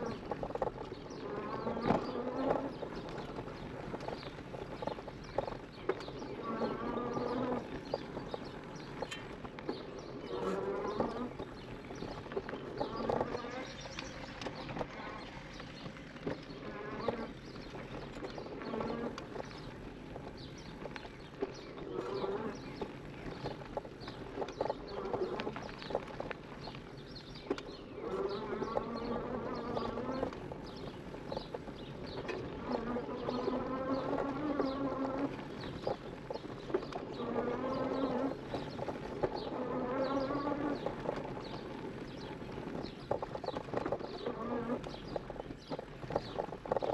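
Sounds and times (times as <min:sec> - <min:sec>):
bike rattling over bumps: 0:00.0 - 0:46.9.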